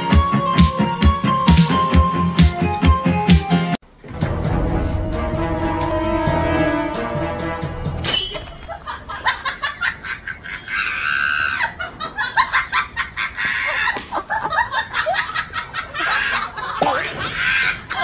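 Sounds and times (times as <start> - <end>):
music: 0.0 - 8.6.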